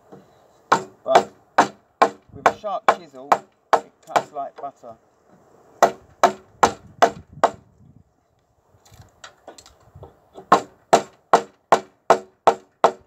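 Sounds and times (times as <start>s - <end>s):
chisel chopping wood: 0.7s - 4.3s, 5.8s - 7.6s, 10.4s - 13.0s.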